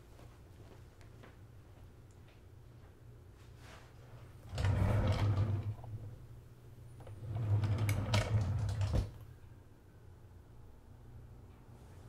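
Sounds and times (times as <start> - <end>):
wooden drawer sliding: 4.4 - 6.0, 7.0 - 9.2.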